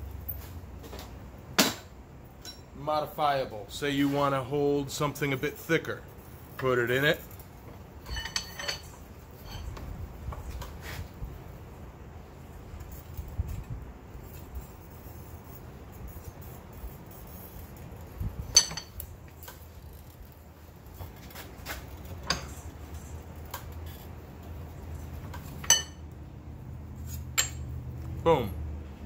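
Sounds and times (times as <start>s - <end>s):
ringing metal clanks: 8.0s - 9.7s, 25.6s - 26.0s, 27.4s - 27.7s.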